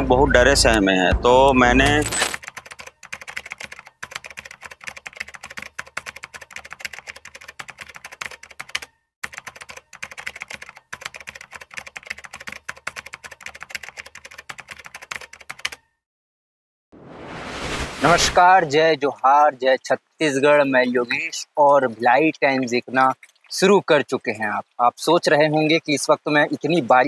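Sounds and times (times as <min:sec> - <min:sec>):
keyboard typing clicks: 0:01.8 - 0:15.9.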